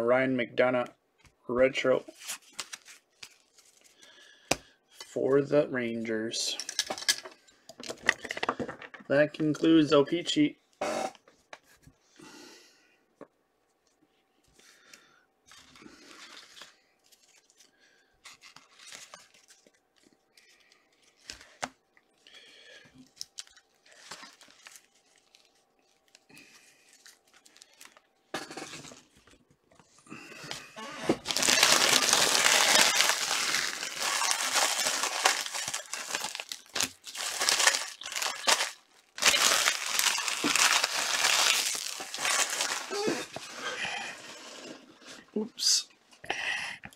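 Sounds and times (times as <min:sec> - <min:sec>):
cards and boxes handled: 0:02.1 - 0:05.1, 0:15.5 - 0:21.8, 0:23.0 - 0:43.5
packaging torn and crumpled: 0:15.5 - 0:21.6, 0:23.0 - 0:28.1, 0:31.1 - 0:43.3.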